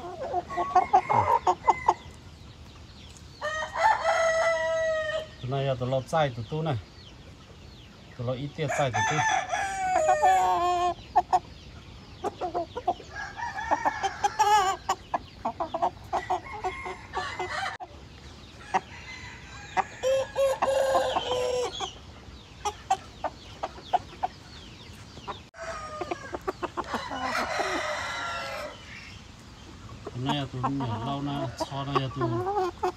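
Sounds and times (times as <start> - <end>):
roosters crowing: 0.0 - 2.4, 3.3 - 5.6, 8.5 - 11.4, 12.3 - 24.2, 25.4 - 29.3
chicken clucks: 0.0 - 32.9.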